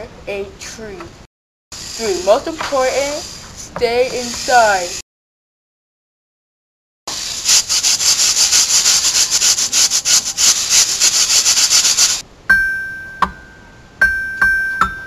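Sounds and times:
heavy rain hissing: 1.8 - 5.0, 7.1 - 12.2.

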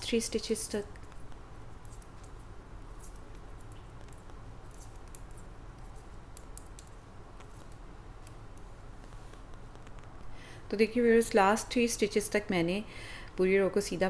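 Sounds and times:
steady low hum: 0.0 - 14.0
metal knitting needles clicking: 6.3 - 8.7.

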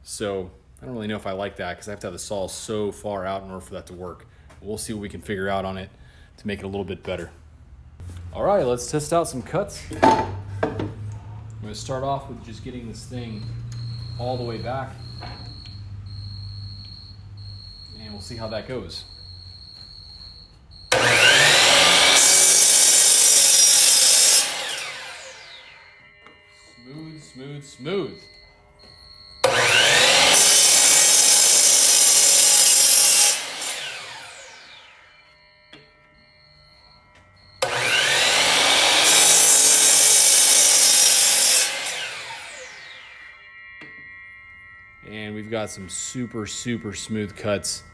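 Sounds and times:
saw blade cutting wood: 20.9 - 28.4, 29.4 - 36.3, 37.6 - 44.2
miter saw motor whining: 20.9 - 47.9.

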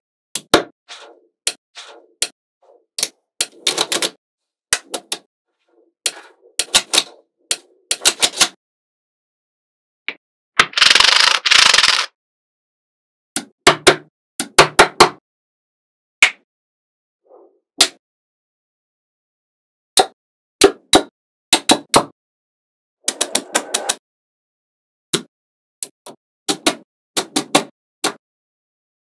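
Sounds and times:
magnetic balls rattling scrape: 0.9 - 2.2.

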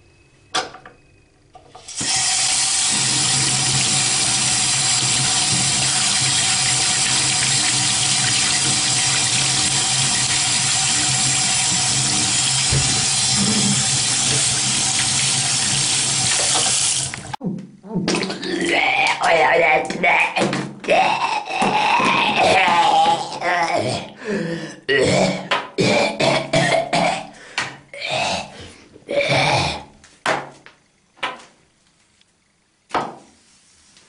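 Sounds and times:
water running from a tap: 1.8 - 17.4.

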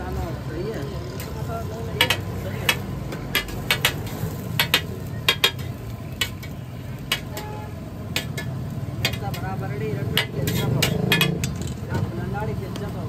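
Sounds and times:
metal spatula clanking on griddle: 2.0 - 11.9.

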